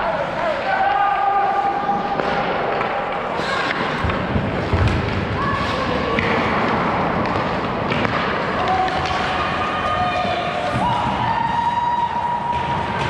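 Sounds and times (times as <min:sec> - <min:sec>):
sticks and pucks knocking: 0:02.1 - 0:09.5.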